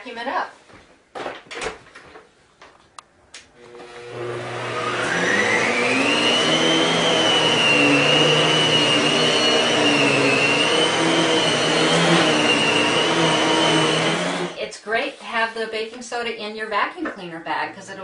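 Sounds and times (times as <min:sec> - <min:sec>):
vacuum cleaner motor whine: 0:03.6 - 0:14.6.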